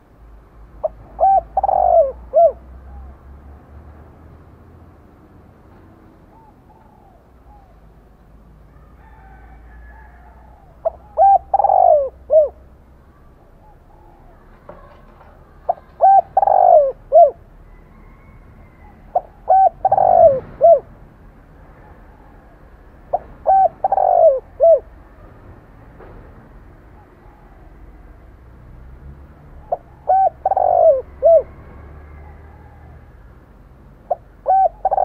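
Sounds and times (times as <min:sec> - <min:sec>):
dove cooing: 0:00.8 - 0:03.3, 0:06.2 - 0:08.0, 0:10.1 - 0:20.9, 0:21.8 - 0:25.0, 0:26.9 - 0:28.0, 0:29.5 - 0:33.2, 0:34.0 - 0:35.0.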